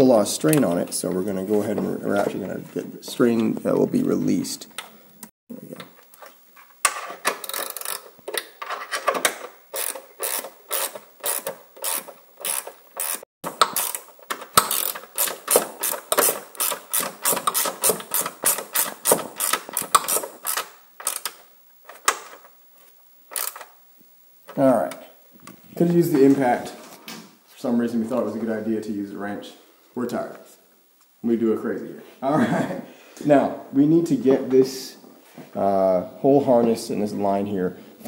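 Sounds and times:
ratchet wrench clicking: 7.4s - 8.1s, 9.7s - 21.4s, 23.4s - 23.7s.

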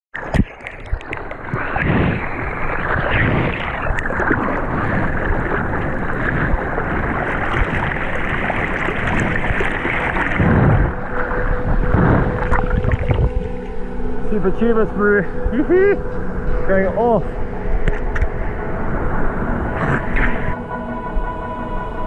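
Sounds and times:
sharp water splashes: 0.2s - 13.7s
water rushing around surfboard: 0.2s - 14.2s, 17.7s - 20.6s.

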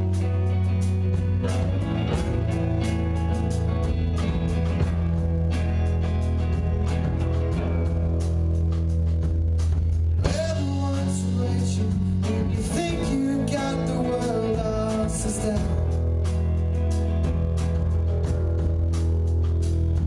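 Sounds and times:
live rock band playing: 0.0s - 20.0s
person singing: 10.2s - 16.1s.

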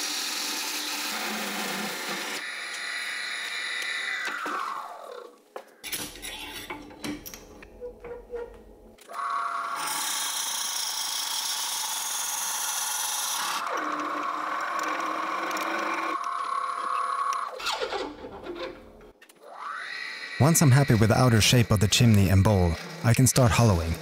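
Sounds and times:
turning tool cutting wood: 0.0s - 5.3s, 9.1s - 18.4s, 19.4s - 24.0s
wood lathe motor hum: 0.0s - 5.3s, 9.1s - 17.6s, 19.4s - 24.0s.

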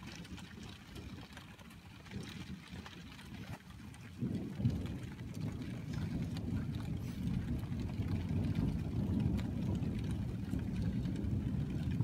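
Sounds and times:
thunder rumbling: 4.2s - 12.0s.

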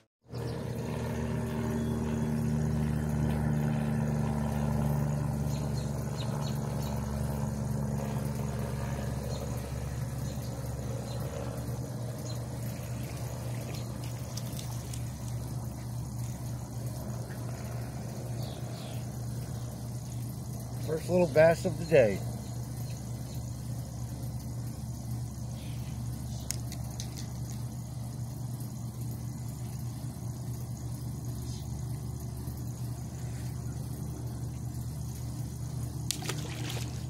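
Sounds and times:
motor humming: 0.3s - 37.0s.

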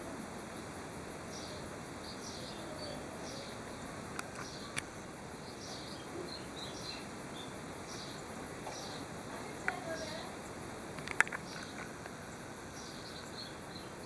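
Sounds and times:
steady hiss: 0.0s - 14.0s
sharp clicks: 10.9s - 11.9s.

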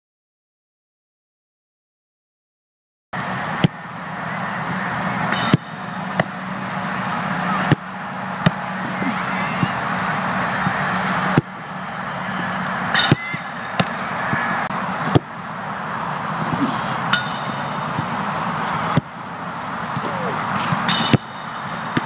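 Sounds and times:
outdoor background hiss: 3.2s - 22.0s
football being kicked: 7.6s - 8.7s.

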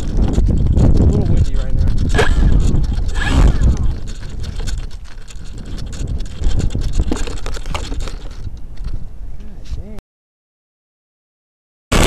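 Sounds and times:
small clicks and rattles: 0.0s - 9.0s
wind buffeting microphone: 0.0s - 10.0s.

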